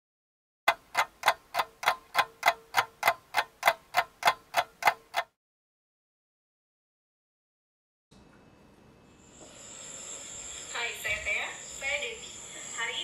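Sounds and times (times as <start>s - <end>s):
clock ticking: 0.7s - 5.4s.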